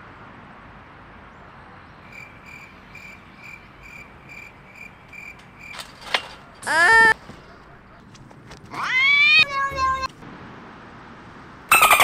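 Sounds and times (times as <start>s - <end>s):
cricket chirping: 2.0s - 5.9s.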